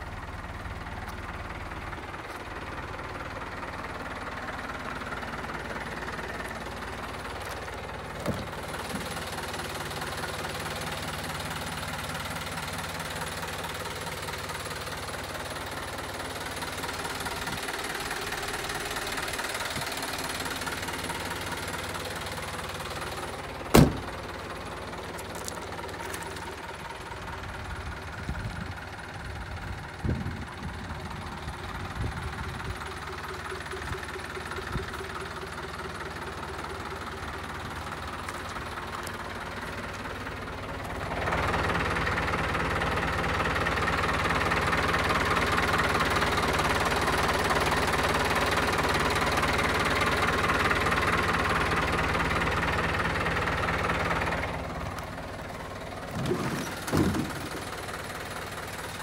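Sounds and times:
diesel engine idling: 0.0 - 59.0
loud thump: 23.7 - 24.1, 56.2 - 57.5.

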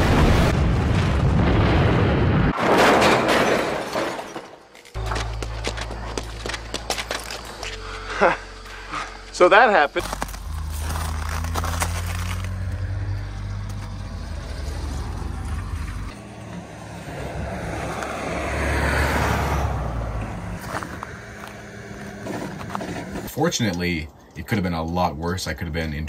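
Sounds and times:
vehicle engine humming: 4.8 - 24.5
vehicle passing: 5.0 - 23.3.

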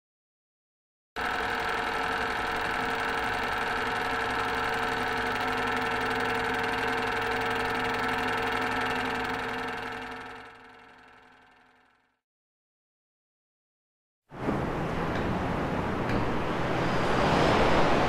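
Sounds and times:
film camera whirring: 1.2 - 12.1.

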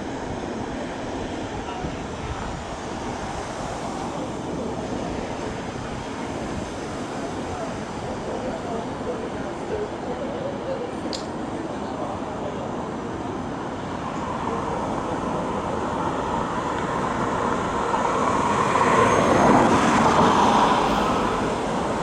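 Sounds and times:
electric train running past: 12.1 - 22.0.

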